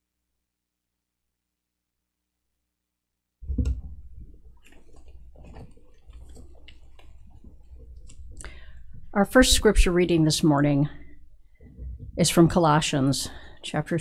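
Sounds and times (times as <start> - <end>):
microphone thump: 3.4 - 4.0
low hum: 3.4 - 13.7
pages rustling and handling clicks: 4.3 - 8.4.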